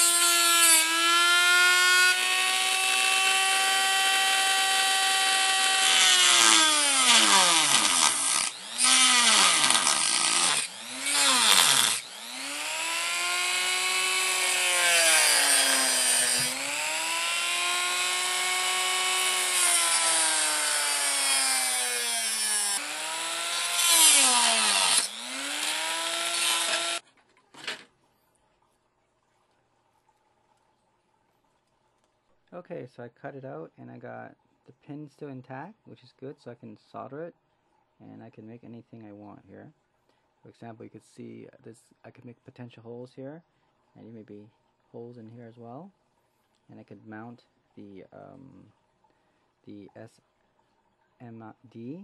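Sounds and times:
rotary tool motor whine: 0.0s - 27.0s
gritty cutting hiss: 5.7s - 17.0s.

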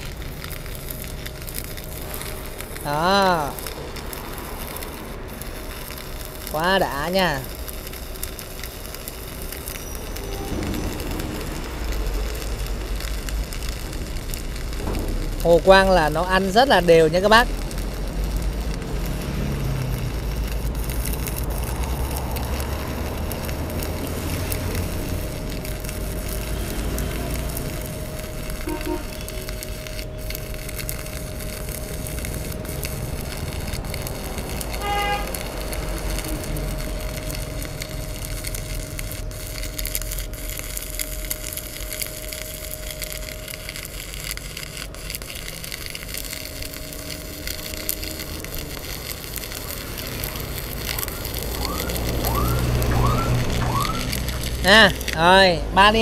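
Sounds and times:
stick welding arc: 0.0s - 56.0s.

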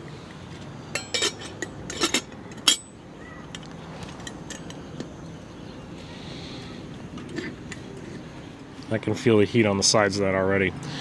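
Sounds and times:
metal lid clinking on pot: 0.9s - 2.9s.

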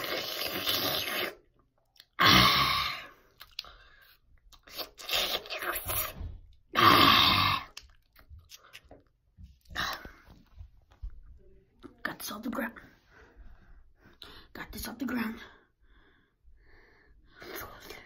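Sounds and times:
chewing and crunching food: 3.2s - 6.2s, 7.6s - 11.2s.

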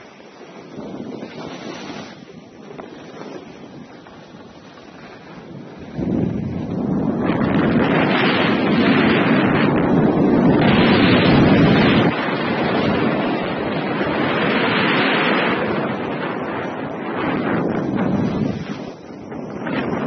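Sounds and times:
skis scraping on snow: 0.0s - 13.4s
wind buffeting microphone: 0.0s - 20.0s.

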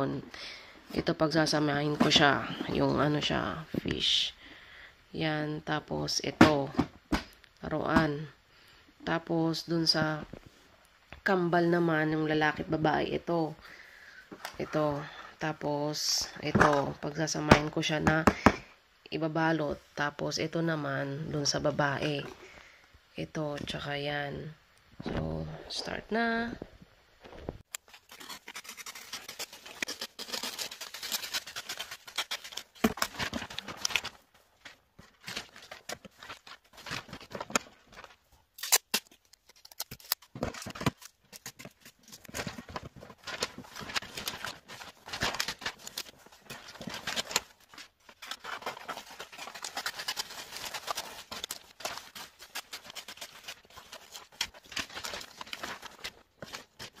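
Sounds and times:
wrapping paper crinkling: 27.6s - 57.0s.

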